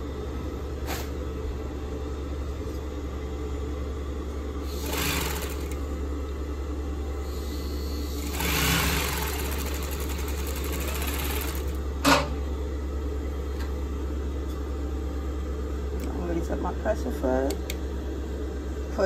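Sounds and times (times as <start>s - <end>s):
steady low hum: 0.0s - 19.0s
sewing machine stitching: 4.7s - 5.8s, 8.2s - 11.8s.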